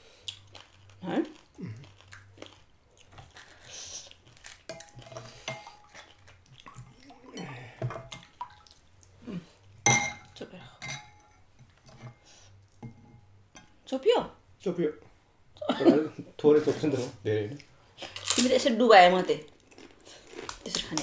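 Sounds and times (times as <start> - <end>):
utensils clinking against dishes: 9.9 - 12.2.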